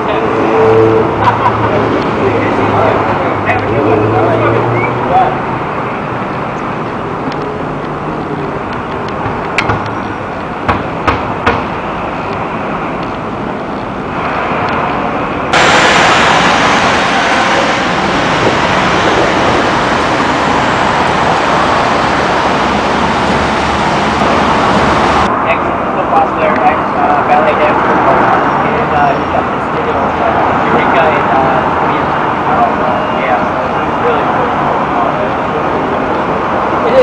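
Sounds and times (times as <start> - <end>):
passing cars: 0.0 - 37.0
sharp knocks: 9.2 - 10.0, 10.6 - 11.8.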